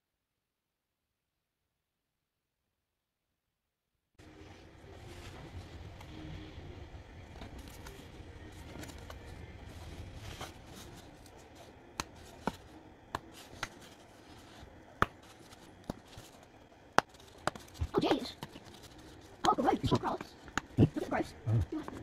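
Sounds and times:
rustle of handling: 7.3 - 20.6.

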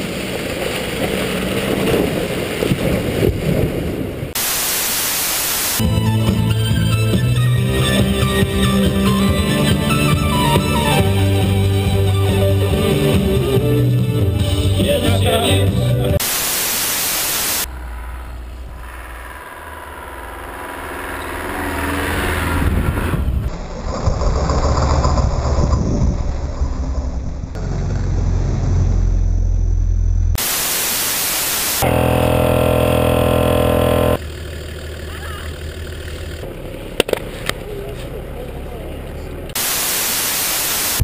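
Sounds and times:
engine rumbling under load: 0.0 - 4.4, 17.0 - 30.5, 31.7 - 39.6
vehicle sliding through snow: 0.0 - 5.8, 30.4 - 41.0
loud static hiss: 4.4 - 6.0, 16.2 - 17.8, 30.3 - 34.2, 39.6 - 41.0.

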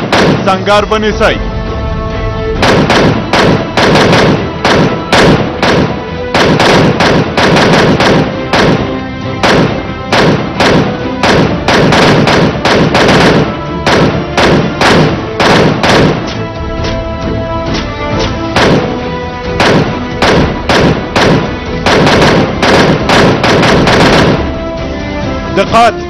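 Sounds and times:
handgun shots: 0.0 - 0.4, 2.6 - 17.0, 17.7 - 19.0, 19.6 - 24.5
background music with held tones: 0.3 - 26.0.

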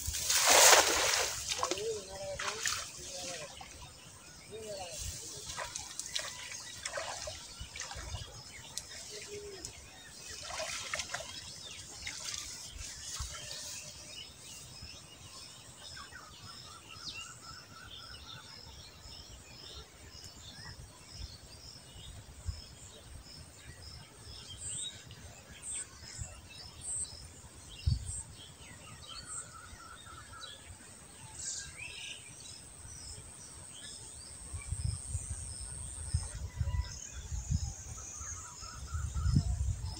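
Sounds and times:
water splashing and dripping: 0.0 - 3.8, 5.3 - 13.4
small birds chirping: 0.0 - 39.9.

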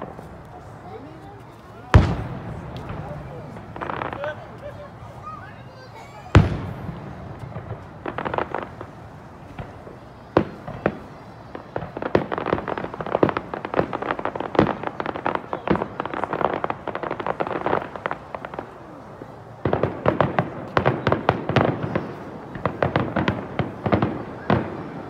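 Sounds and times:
rapid firework pops and crackles: 0.0 - 4.8, 6.3 - 25.0.

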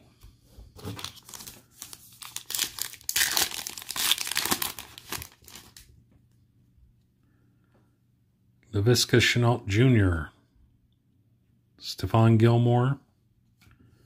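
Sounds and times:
foil wrapper crinkling and tearing: 0.8 - 5.9.

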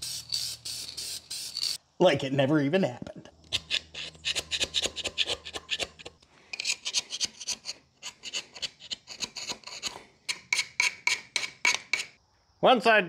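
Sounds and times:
hand scraper scraping metal: 3.5 - 12.2.

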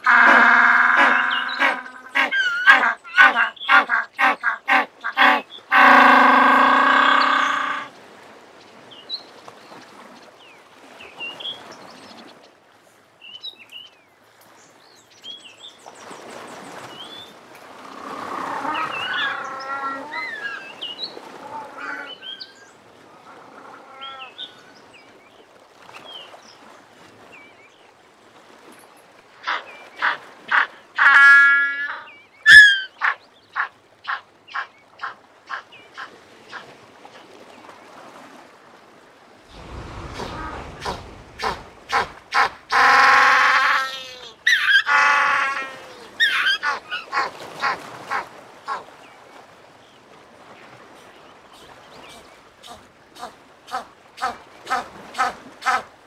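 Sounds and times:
bird calls: 0.0 - 7.9, 31.9 - 36.6, 43.8 - 45.0, 45.6 - 48.8
penguin braying call: 0.0 - 7.9, 29.5 - 34.2.

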